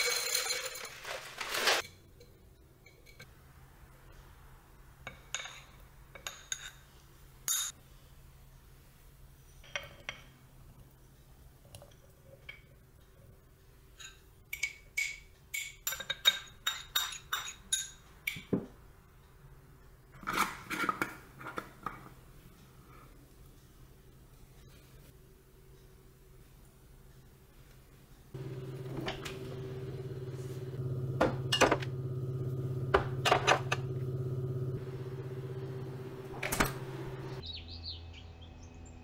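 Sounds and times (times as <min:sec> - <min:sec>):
spoon clinking on glass jar: 0:00.0 - 0:01.0.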